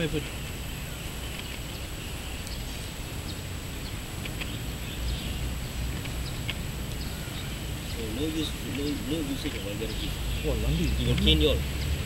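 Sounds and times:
faint bird chirps: 0.0 - 12.0
wind rumble on microphone: 0.0 - 12.0.

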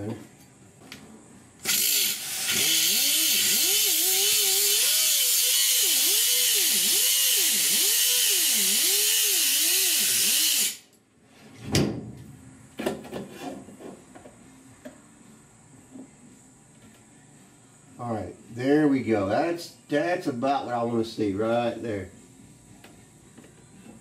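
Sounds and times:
power tool hissing: 1.6 - 10.8.

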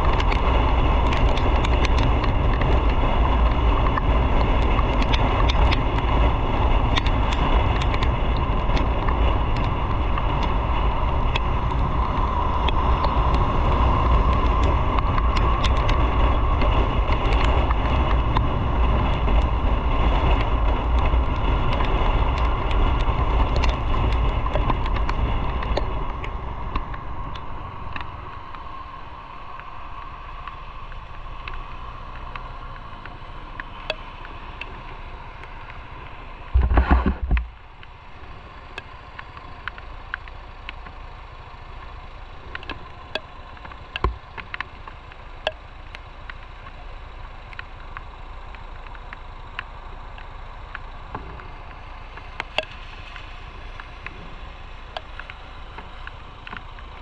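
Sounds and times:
motorcycle engine and tyres: 0.0 - 57.0
wind rush on microphone: 0.0 - 57.0
light clicks: 41.7 - 57.0.

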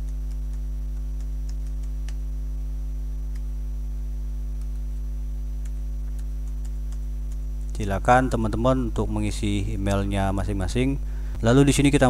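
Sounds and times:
faint clicks: 0.0 - 2.2
electrical mains hum: 0.0 - 12.0.

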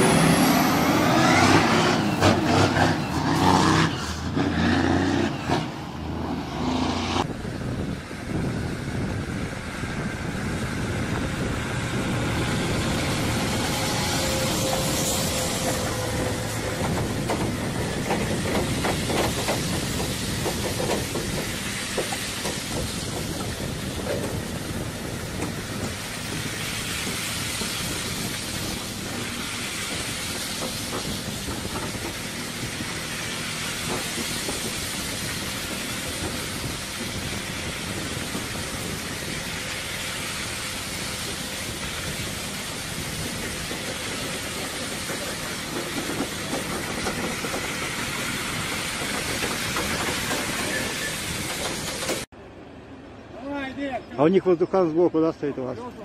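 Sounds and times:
trailers knocking: 11.1 - 38.9, 43.0 - 52.3.

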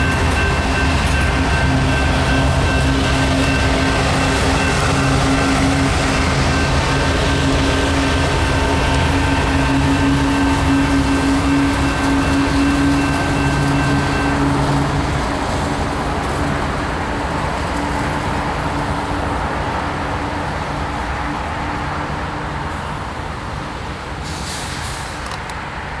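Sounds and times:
diesel locomotive rumbling: 0.0 - 26.0
short hiss: 24.2 - 25.3.

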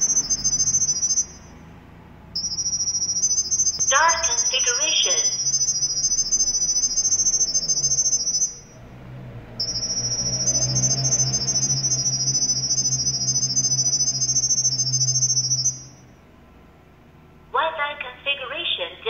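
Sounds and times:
high-pitched chirping tones: 0.0 - 1.7, 2.4 - 8.8, 9.6 - 16.1
low background hum: 0.0 - 10.8, 11.7 - 19.0.

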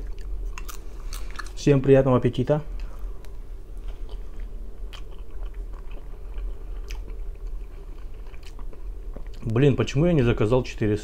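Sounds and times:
person chewing pizza: 0.0 - 1.6, 2.7 - 9.6.

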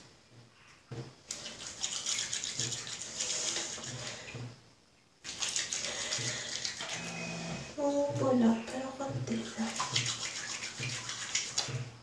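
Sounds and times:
wet hands rubbing soap: 1.3 - 4.6, 5.2 - 7.1, 8.1 - 12.0.

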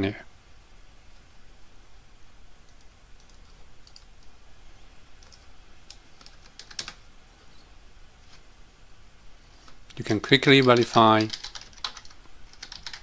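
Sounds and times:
keyboard and mouse clicks: 2.7 - 4.3, 5.2 - 7.0, 10.6 - 13.0
fast typing keystrokes: 5.2 - 7.0, 10.5 - 13.0.

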